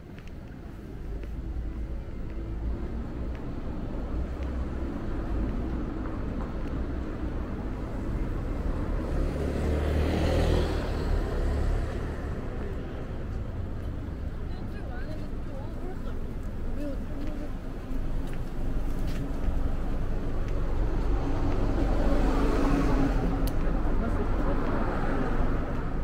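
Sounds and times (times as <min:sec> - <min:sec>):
low traffic rumble: 0:00.0 - 0:26.0
car passing: 0:07.6 - 0:12.8, 0:19.4 - 0:26.0.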